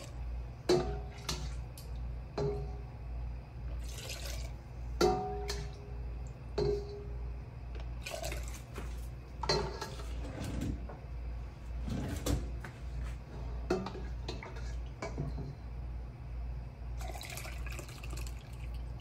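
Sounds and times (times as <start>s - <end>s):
steady low hum: 0.0s - 19.0s
liquid pouring and splashing: 3.8s - 4.6s, 8.0s - 8.9s, 17.0s - 19.0s.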